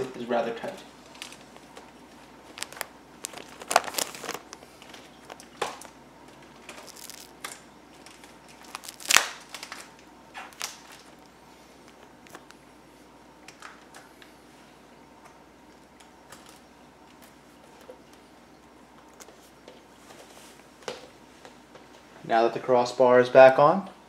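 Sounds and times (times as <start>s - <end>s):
plastic bag crinkling: 1.0s - 12.6s.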